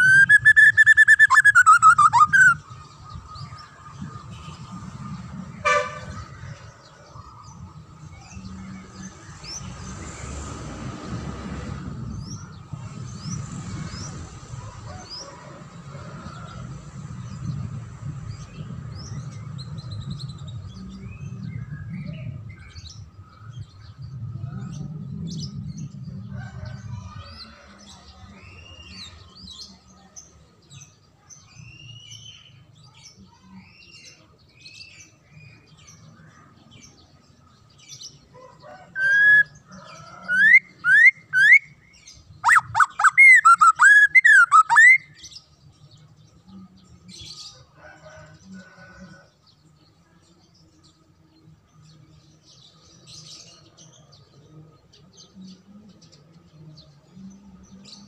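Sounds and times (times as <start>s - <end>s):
bird chirping and whistling: 0.0s - 2.6s, 39.0s - 39.6s, 40.3s - 41.7s, 42.4s - 45.2s.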